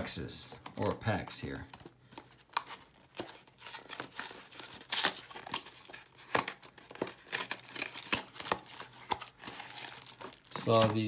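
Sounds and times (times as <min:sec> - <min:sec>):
cardboard crinkling: 0:00.6 - 0:11.0
cardboard box tearing: 0:02.6 - 0:11.0.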